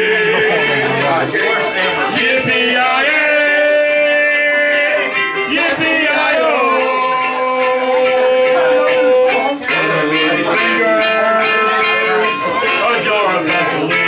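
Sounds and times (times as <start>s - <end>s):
man singing: 0.0s - 14.0s.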